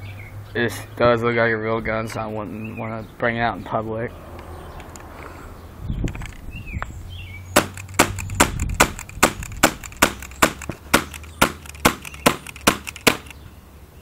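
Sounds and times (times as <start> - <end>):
airsoft pistol shots: 7.6 - 13.3.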